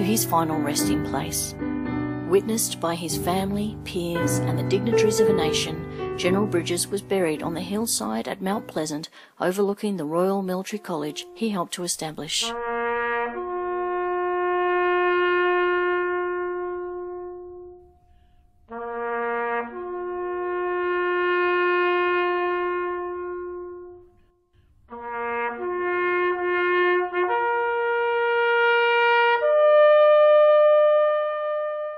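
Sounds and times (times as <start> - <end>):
solo bugle call: 12.6 - 18.0, 18.7 - 24.2, 24.9 - 31.9.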